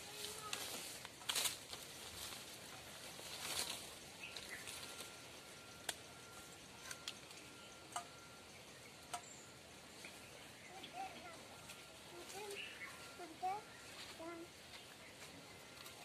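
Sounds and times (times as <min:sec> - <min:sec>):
leaves and branches rustling: 0:00.0 - 0:16.0
faint steady high tone: 0:03.4 - 0:16.0.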